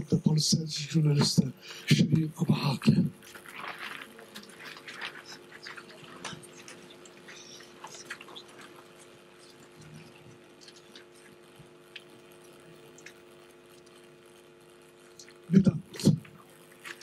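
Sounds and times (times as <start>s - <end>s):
steady low hum: 0.0s - 17.0s
small rustling: 3.2s - 14.1s
faint ticks: 5.6s - 15.4s.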